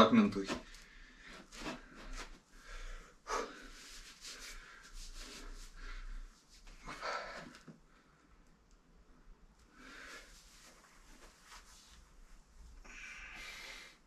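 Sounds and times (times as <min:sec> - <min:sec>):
man breathing heavily: 0:00.7 - 0:08.2, 0:12.8 - 0:14.0.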